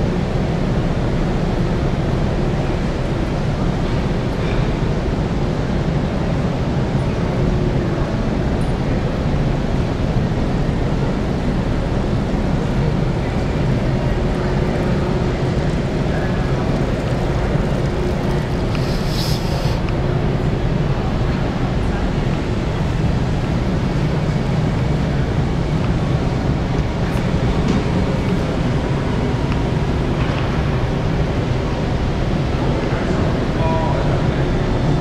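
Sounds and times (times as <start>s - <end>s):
low rumbling background noise: 0.0s - 35.0s
brief hiss: 18.7s - 19.8s.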